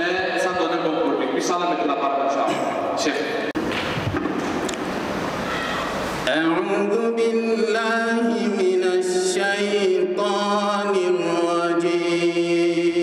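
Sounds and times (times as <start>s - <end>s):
person reciting melodically: 6.2s - 13.0s.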